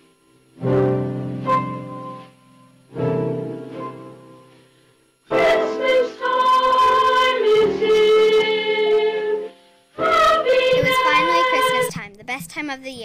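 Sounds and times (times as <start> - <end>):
choir singing slow song: 5.3 - 11.9.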